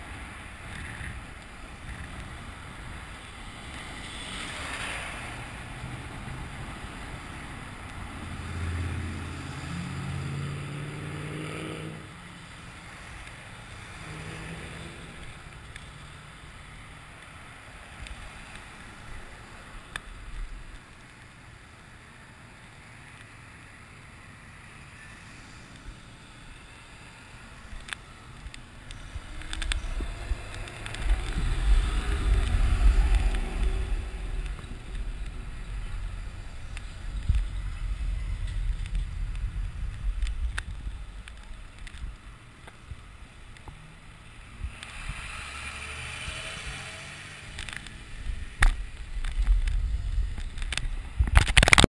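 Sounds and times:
wind rumbling on microphone: 0:00.0 - 0:10.9, 0:25.7 - 0:51.9
car traffic passing: 0:00.0 - 0:51.8.

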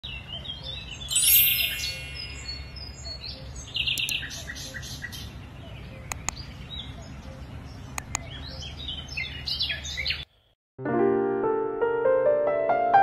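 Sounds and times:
songbirds chirping and singing: 0:00.0 - 0:10.3
sharp clicks: 0:03.9 - 0:04.3, 0:06.1 - 0:06.4, 0:07.9 - 0:08.2.

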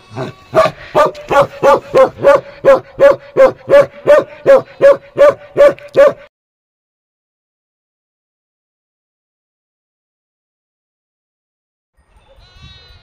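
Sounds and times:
dog barking: 0:00.2 - 0:06.3.

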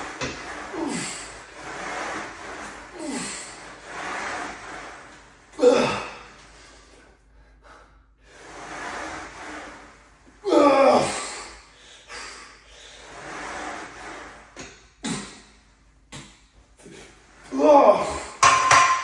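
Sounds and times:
man grunting with strain: 0:05.6 - 0:06.3
man breathing hard: 0:05.6 - 0:08.5, 0:11.1 - 0:13.2.

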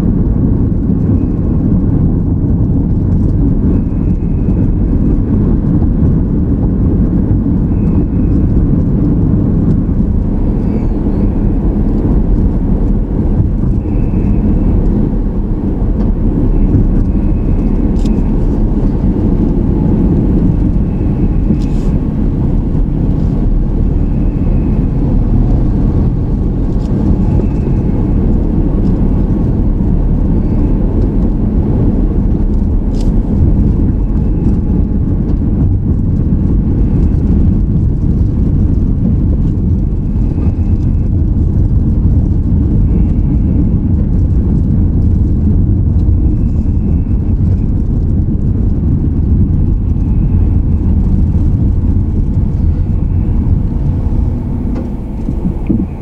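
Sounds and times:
car road and engine noise: 0:00.0 - 0:56.0.

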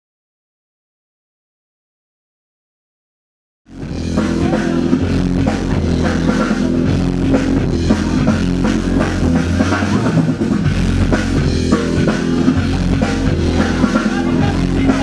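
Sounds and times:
loud music with drum beat: 0:03.7 - 0:15.0.

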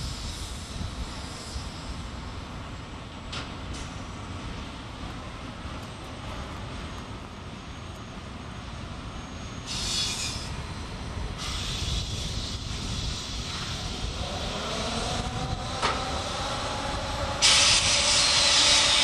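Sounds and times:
electric locomotive rumbling: 0:00.0 - 0:19.0
air hissing: 0:09.7 - 0:10.6, 0:11.4 - 0:14.0, 0:17.4 - 0:19.0.

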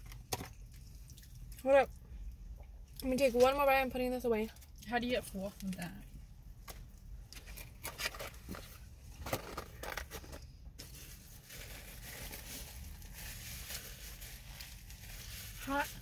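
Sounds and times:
paper bag crinkling: 0:09.4 - 0:16.0.

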